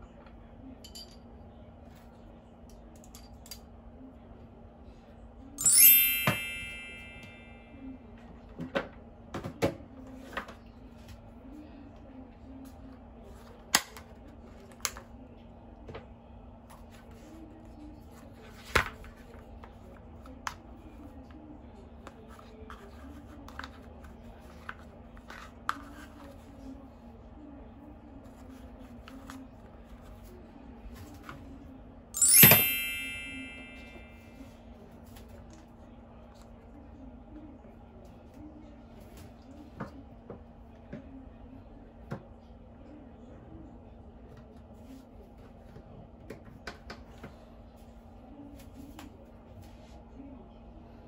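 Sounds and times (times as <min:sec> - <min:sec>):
faint low hum: 0:00.0 - 0:32.3.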